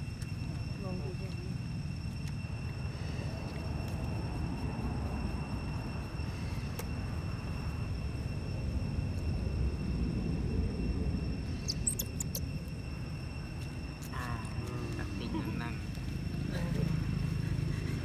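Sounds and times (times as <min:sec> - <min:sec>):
steady low rumble: 0:00.0 - 0:18.0
high squeaky chirps: 0:11.5 - 0:12.8.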